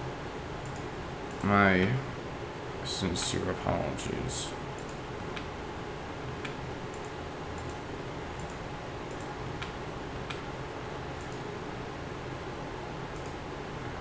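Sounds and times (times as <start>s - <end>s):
low room hum: 0.0s - 14.0s
computer keys clicking: 0.6s - 2.0s, 4.8s - 5.5s, 6.4s - 7.8s, 8.4s - 10.4s, 11.2s - 11.5s, 13.1s - 13.4s.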